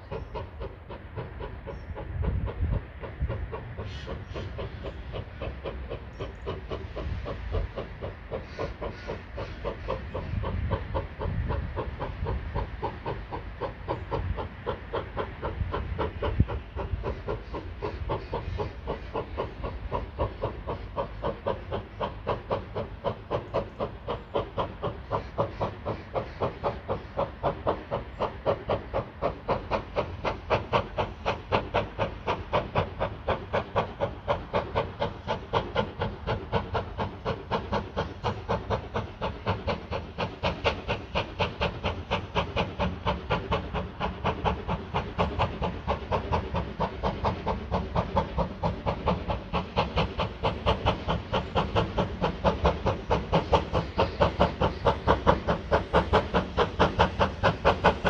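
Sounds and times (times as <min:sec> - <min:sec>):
steam locomotive chuffing: 0:00.0 - 0:58.0.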